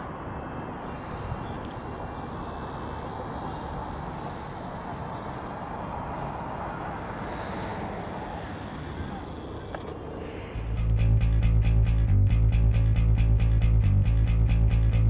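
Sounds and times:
distant road traffic hum: 0.0 - 11.3.

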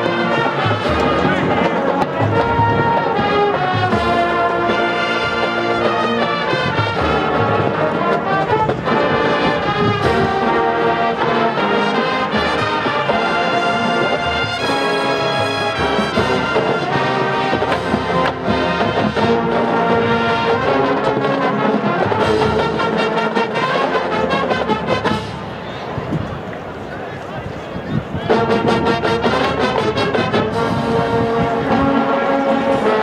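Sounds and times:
percussion hits: 0.0 - 25.6
marching band playing: 0.0 - 26.1, 28.2 - 33.0.

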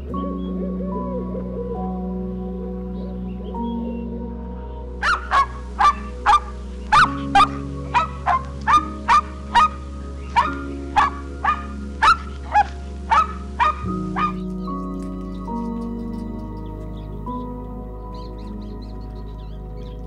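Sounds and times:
soft background music: 0.0 - 20.0.

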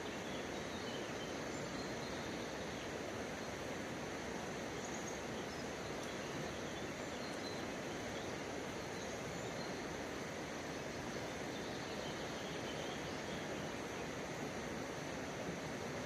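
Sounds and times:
flowing river water: 0.0 - 16.0.

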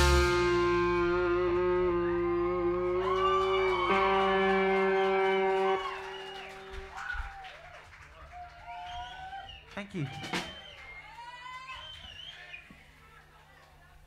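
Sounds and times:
electric guitar chord ringing: 0.0 - 6.4
gliding guitar notes: 0.0 - 6.7.

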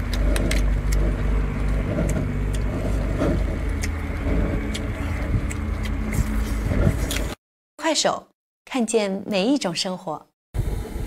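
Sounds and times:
engine droning: 0.0 - 7.4.

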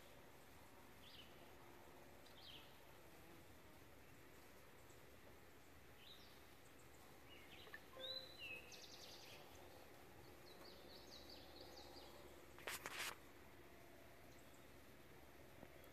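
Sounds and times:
songbird chirps and whistles: 7.3 - 9.4.

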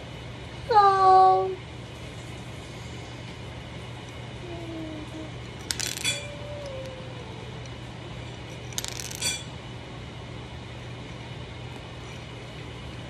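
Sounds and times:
steady low hum: 0.0 - 13.0
cutlery clinking on ceramic plate: 9.0 - 9.5.

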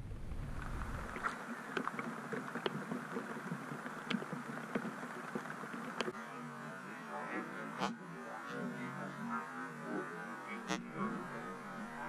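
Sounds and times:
rain falling on lake: 0.1 - 6.2.

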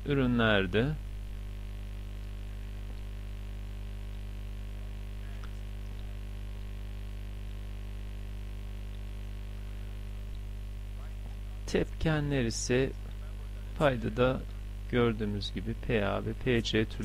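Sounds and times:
buzzy electrical mains hum: 0.0 - 17.0.

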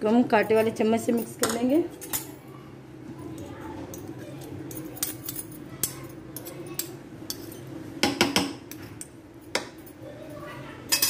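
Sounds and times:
cutlery clinking against ceramic bowl: 4.0 - 8.8.

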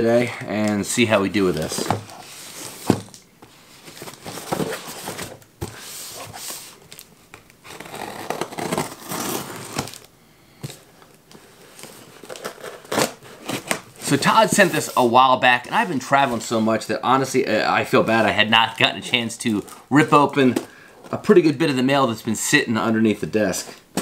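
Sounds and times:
tape tearing and crinkling: 6.3 - 10.1, 11.7 - 14.2.

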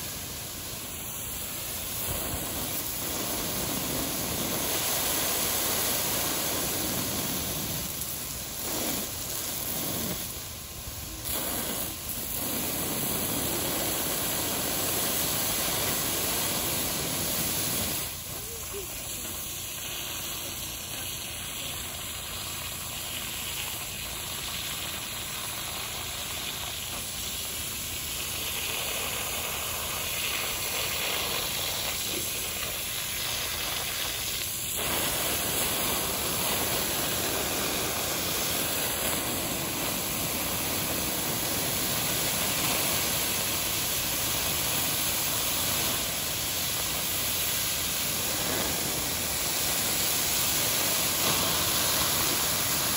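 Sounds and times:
water hissing on hot metal: 0.0 - 52.9.

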